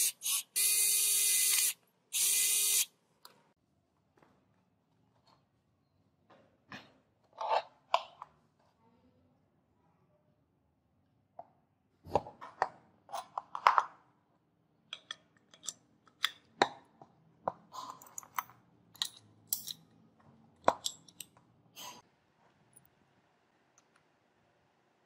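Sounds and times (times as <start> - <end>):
gun parts clicking and knocking: 14.9 - 16.5.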